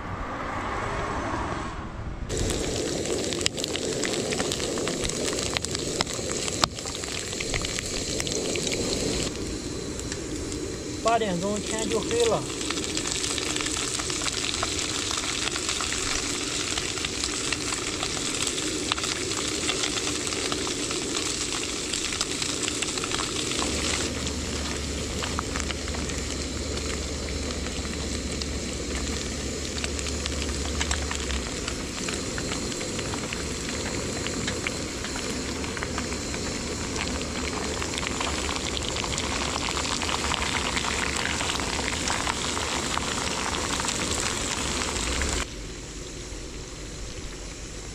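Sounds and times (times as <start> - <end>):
meat frying in oil: 2.3 - 47.9.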